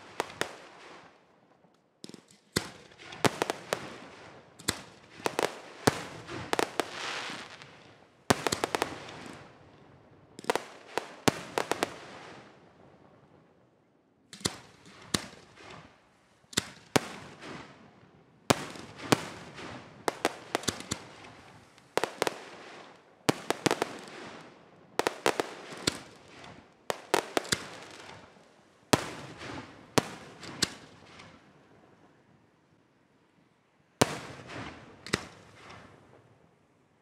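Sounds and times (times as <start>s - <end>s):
firework shells bursting: 18.5s - 22.6s, 23.3s - 28.4s.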